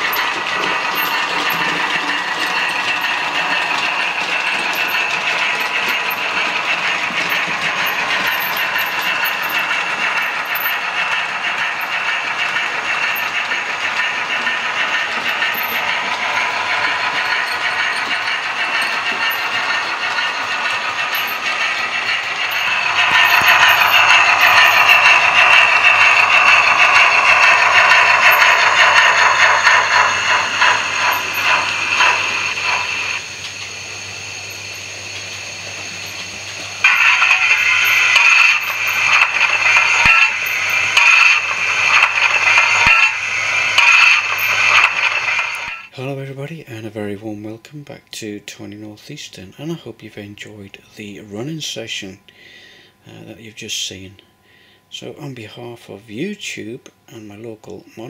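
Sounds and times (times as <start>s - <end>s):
model train motors whirring: 0.0s - 45.9s.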